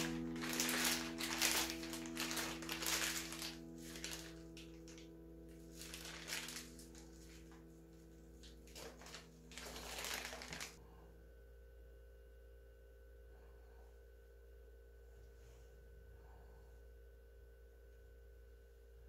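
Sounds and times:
plastic piping bag crinkling: 0.0s - 10.8s.

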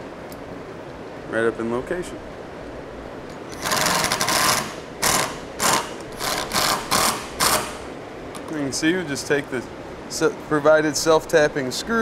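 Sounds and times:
impact driver driving screws: 3.5s - 7.9s.

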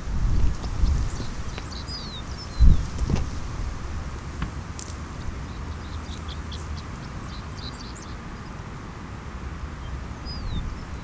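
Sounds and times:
distant jet rumble: 0.0s - 7.0s
birds chirping: 0.0s - 11.0s.

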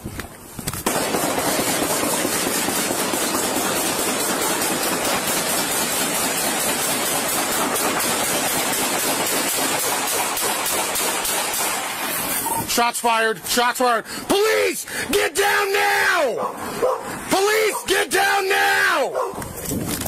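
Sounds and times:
rapid gunshots: 0.8s - 12.3s.

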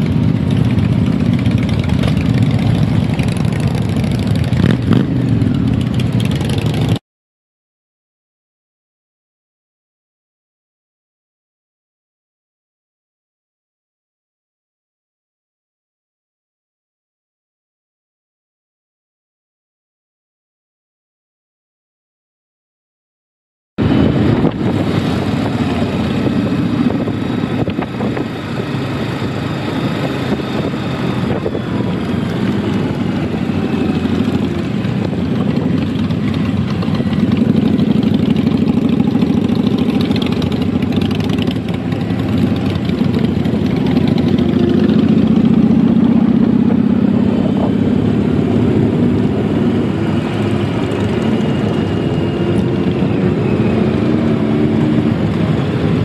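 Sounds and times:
motorcycle engines in procession: 0.0s - 7.0s, 23.8s - 56.0s.

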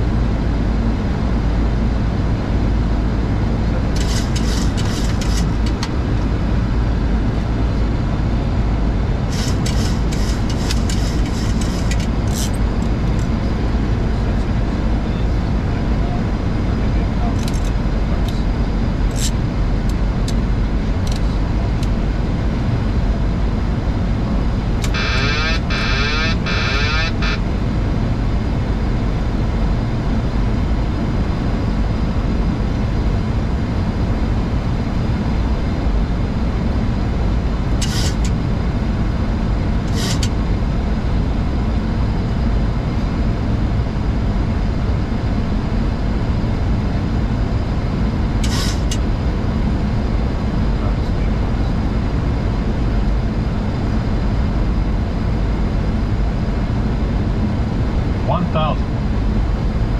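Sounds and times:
aircraft engine and airflow noise: 0.0s - 59.9s
brief hissy clicks: 37.8s - 38.2s, 48.4s - 48.9s.

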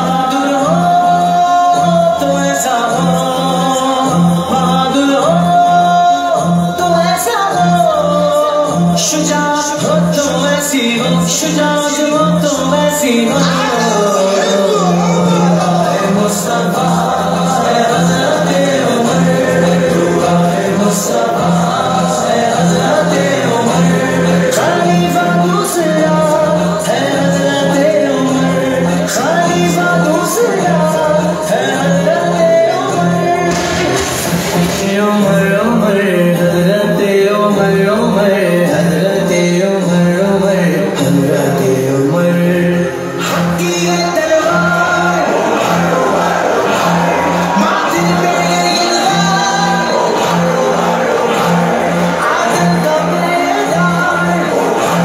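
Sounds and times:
group singing devotional song: 9.6s - 39.1s, 40.6s - 55.0s
steady held drone: 13.4s - 32.0s.

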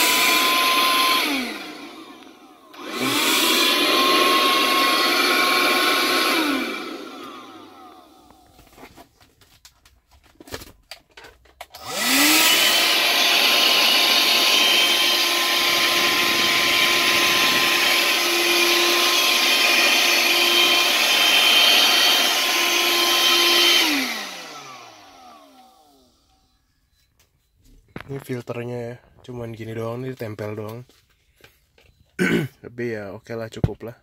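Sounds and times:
handheld vacuum cleaner whine: 0.0s - 8.8s, 11.6s - 27.6s.

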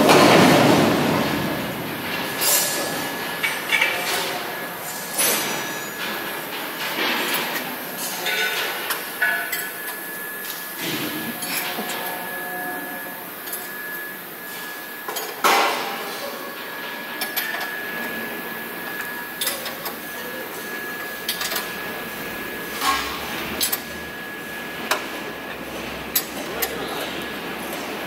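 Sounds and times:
steady background hum: 0.0s - 28.0s
high-pitched whine: 7.9s - 15.6s.

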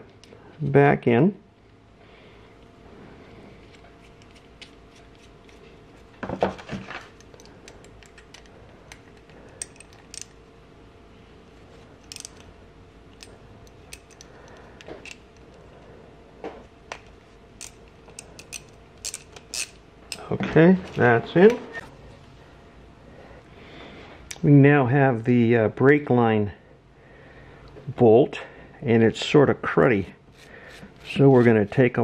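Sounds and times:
faint steady hum: 0.0s - 32.0s
metallic tool clicks: 7.2s - 10.4s, 12.0s - 12.5s, 13.1s - 15.5s, 17.6s - 20.2s.

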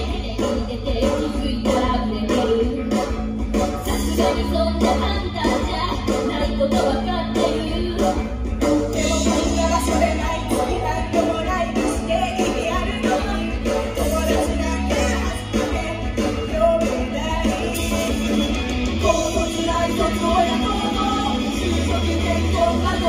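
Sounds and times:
women singing into microphones: 0.0s - 3.0s, 3.8s - 8.3s, 9.0s - 17.9s, 19.6s - 23.0s
pop song over sound system: 0.0s - 23.0s.

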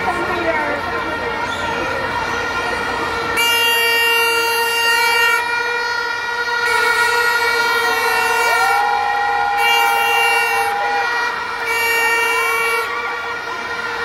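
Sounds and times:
horn holding a steady note: 2.4s - 14.0s
horn sliding up in pitch: 3.4s - 14.0s.

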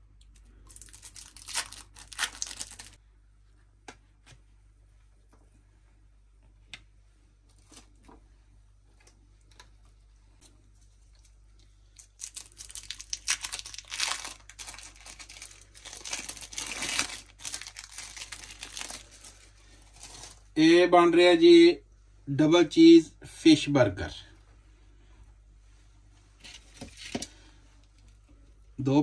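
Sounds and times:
plastic film crinkling and tearing: 0.7s - 3.0s, 11.1s - 20.5s.

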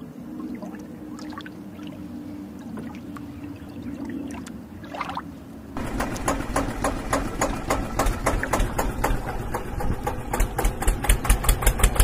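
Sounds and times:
puddle water splashing: 4.2s - 5.2s.

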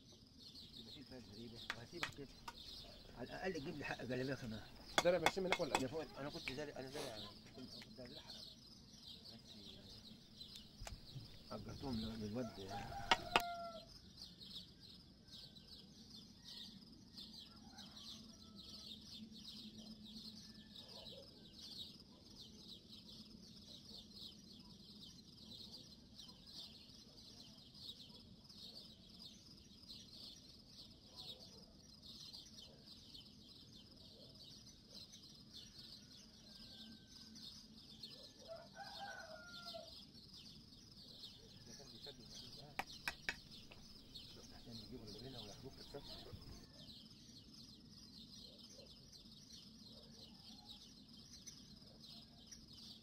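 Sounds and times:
chickens clucking: 1.7s - 7.3s, 12.0s - 13.5s.

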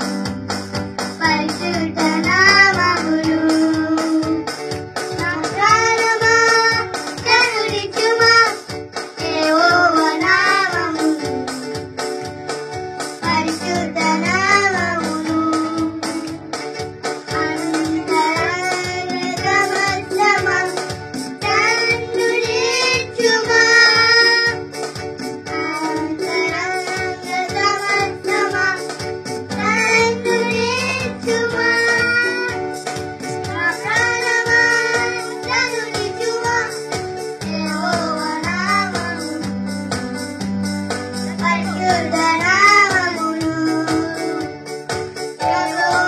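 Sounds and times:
electronic keyboard chords: 0.0s - 46.0s
steady beat: 0.0s - 46.0s
boys singing into microphones: 1.2s - 4.6s, 5.2s - 8.6s, 9.2s - 11.7s, 13.2s - 16.6s, 17.3s - 20.8s, 21.4s - 24.7s, 25.5s - 32.7s, 33.5s - 36.8s, 37.4s - 39.4s, 41.4s - 44.5s, 45.4s - 46.0s.

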